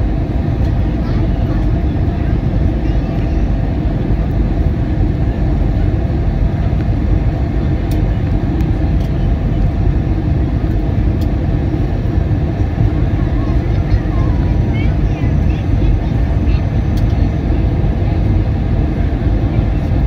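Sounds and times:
aircraft engine drone: 0.0s - 20.0s.

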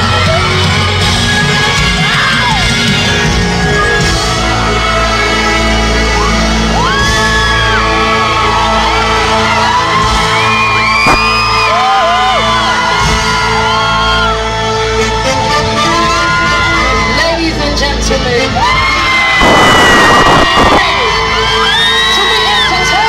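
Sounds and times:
crowd screaming: 0.0s - 17.6s, 18.3s - 23.0s
loud concert music: 0.0s - 23.0s
high shrieks: 19.4s - 20.8s.

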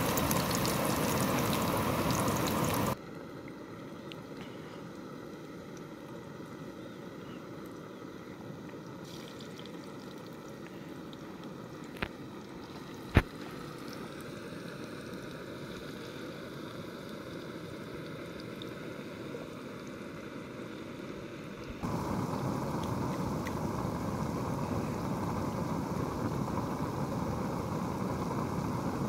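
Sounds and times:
food sizzling in oil: 0.0s - 3.0s
gas burner hiss: 0.0s - 3.0s, 20.8s - 29.0s.

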